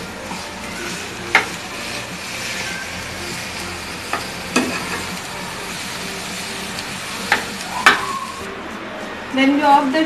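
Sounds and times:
food sizzling in frying pan: 0.0 - 8.5.

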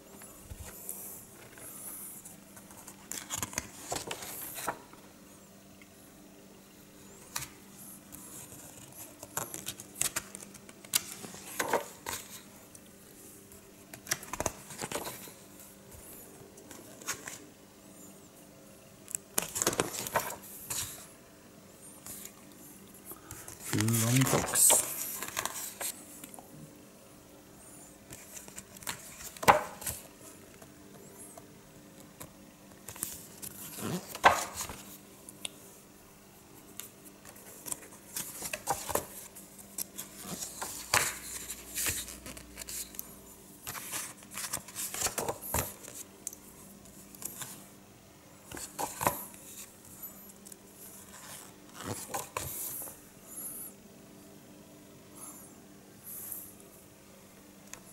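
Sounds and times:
book pages turning: 0.2 - 5.0, 7.3 - 12.5, 13.5 - 17.5, 19.1 - 21.1, 23.1 - 26.4, 28.0 - 30.7, 31.3 - 35.0, 36.7 - 47.7, 48.5 - 53.0.

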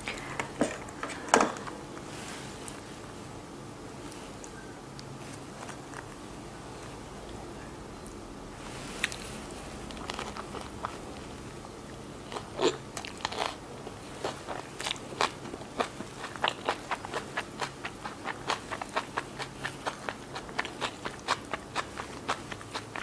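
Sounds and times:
chewing crunches: 9.0 - 23.0.

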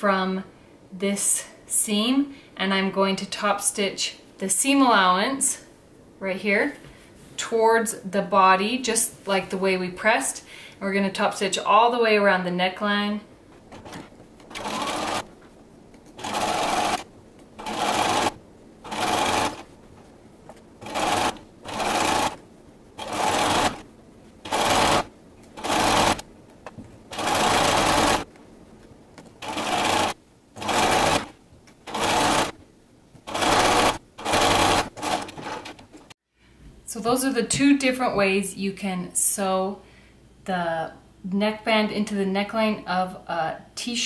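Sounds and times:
sewing machine stitching: 13.7 - 15.3, 16.2 - 19.7, 20.8 - 22.4, 23.0 - 23.8, 24.4 - 26.2, 27.1 - 28.3, 29.4 - 32.6, 33.2 - 35.8.

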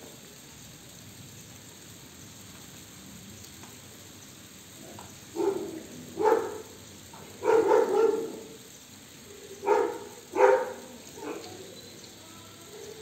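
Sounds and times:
dog barking: 5.3 - 8.6, 9.6 - 11.6.

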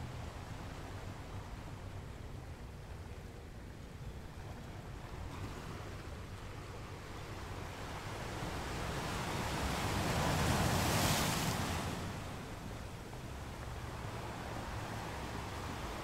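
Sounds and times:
wind rumble on microphone: 0.0 - 16.0
surf breaking on sand: 8.6 - 12.6.

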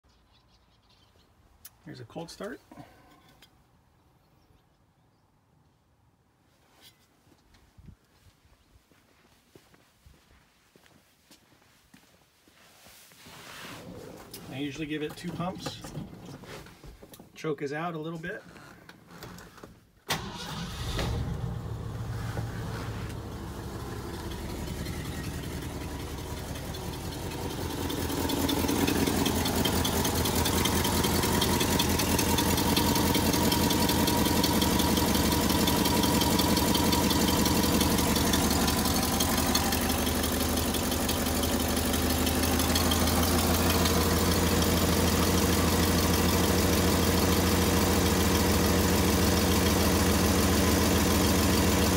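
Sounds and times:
engine idling: 20.2 - 51.9.

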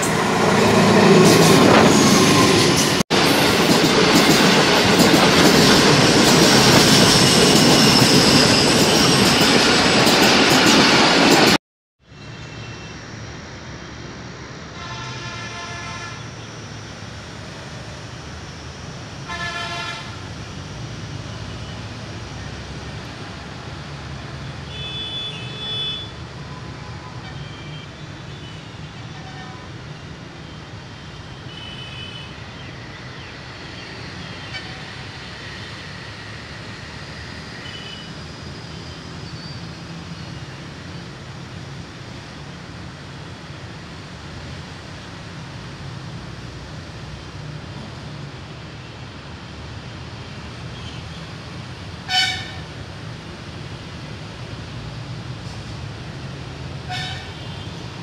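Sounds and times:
road traffic rumble: 12.0 - 58.0
vehicle horns honking: 24.7 - 26.1, 52.1 - 52.6, 56.9 - 57.7.

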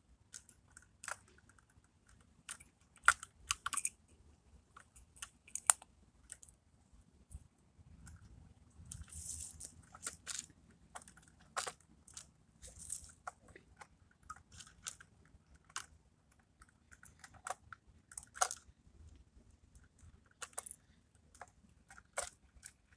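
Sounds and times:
small plastic clicks: 0.3 - 6.6, 8.0 - 22.9
scraping rustle: 8.9 - 10.4.

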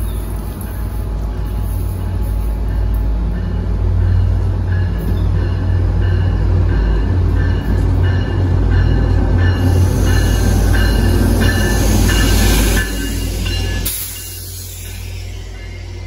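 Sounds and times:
train engine rumble: 0.0 - 16.0
train brakes squealing: 7.4 - 16.0.

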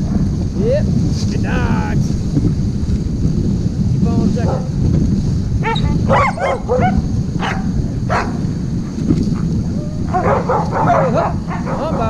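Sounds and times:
wind noise on microphone: 0.0 - 12.0
dogs yipping and barking: 5.6 - 12.0.

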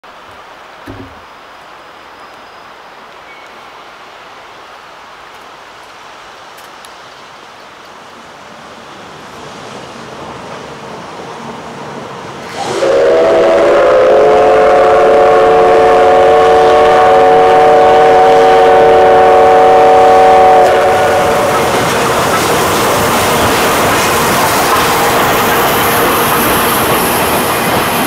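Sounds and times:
locomotive running noise: 12.3 - 28.0
steam locomotive whistle: 12.5 - 21.8.

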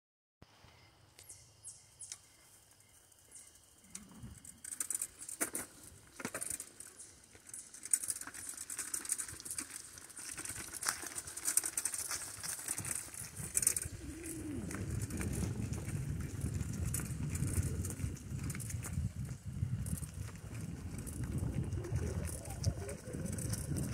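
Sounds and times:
bicycle tyres crunching on dirt: 2.0 - 23.9
bicycle clicks and rattles: 3.2 - 23.9
low rumble: 13.8 - 23.9.

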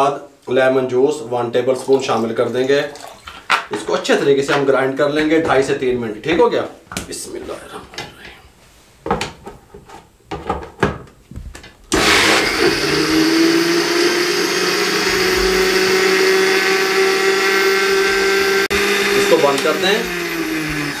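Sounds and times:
blender motor grinding: 11.9 - 21.0.

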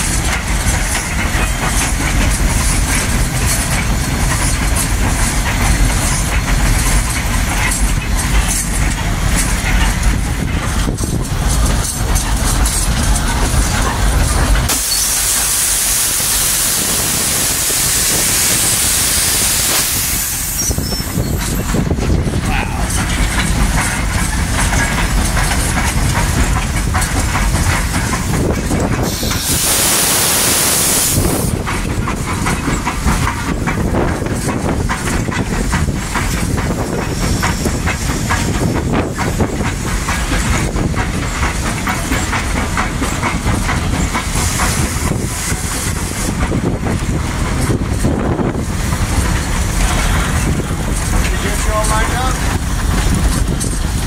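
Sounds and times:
steam locomotive rumble and clatter: 0.0 - 54.0
steam hiss: 14.6 - 21.8, 27.0 - 33.5, 36.0 - 54.0.

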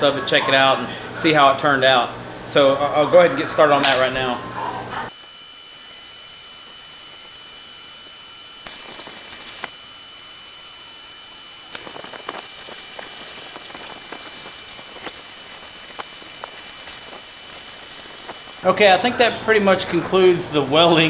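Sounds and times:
welder arc hissing: 5.1 - 18.7.

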